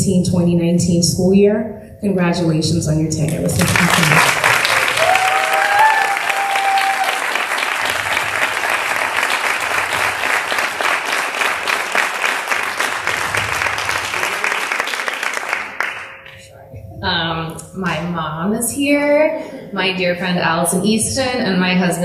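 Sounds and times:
audience applauding: 3.3s - 16.4s.

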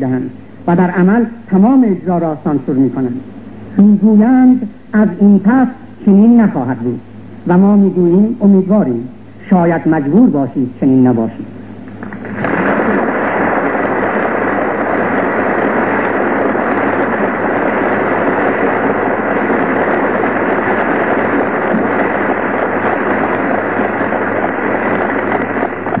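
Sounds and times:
muffled audience applause: 12.0s - 26.0s.

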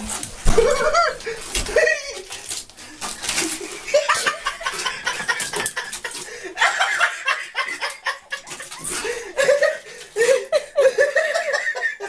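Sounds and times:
person laughing: 0.5s - 2.4s, 3.5s - 12.0s.

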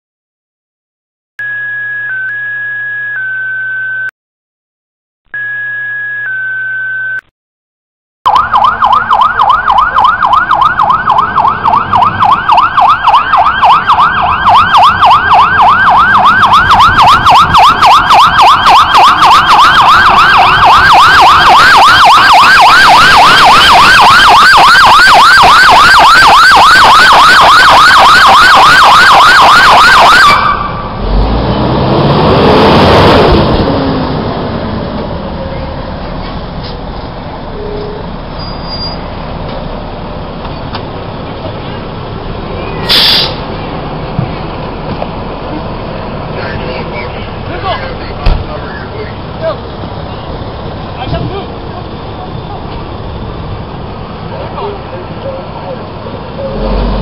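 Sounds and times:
siren fast yelp: 1.4s - 4.1s, 5.4s - 7.2s, 8.3s - 31.0s
heavy vehicle passing: 30.7s - 38.4s.

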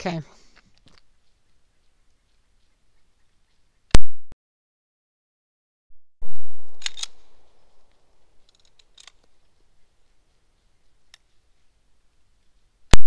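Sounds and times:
sharp clicks: 6.7s - 7.3s, 7.9s - 9.4s.

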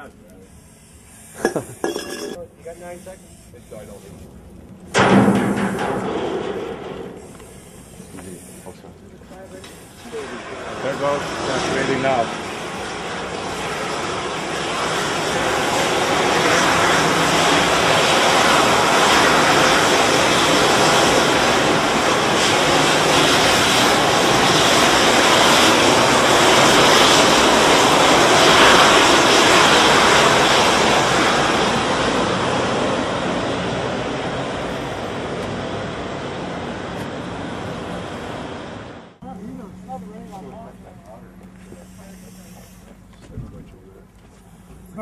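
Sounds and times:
aerosol discharging hissing rush: 0.3s - 1.9s, 2.6s - 5.0s, 7.1s - 32.9s, 41.7s - 43.0s.

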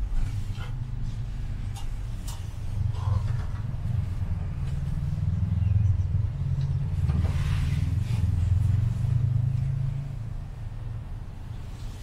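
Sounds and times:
cable car rumble: 0.0s - 12.0s.

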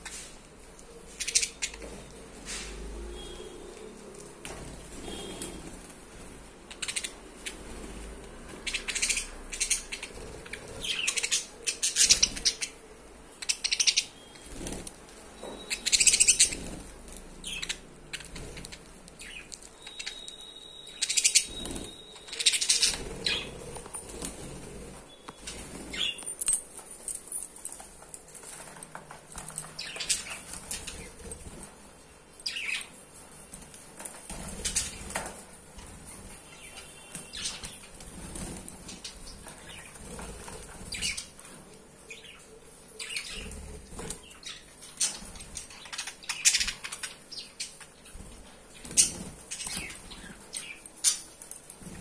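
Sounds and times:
budgerigars chirping and squawking: 1.1s - 2.1s, 6.7s - 12.8s, 13.4s - 14.8s, 15.7s - 20.3s, 20.9s - 24.6s, 36.5s - 48.1s, 48.8s - 51.4s.

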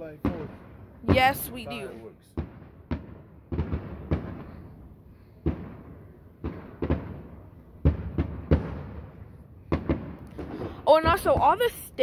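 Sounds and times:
fireworks bangs with echo: 0.0s - 12.0s.

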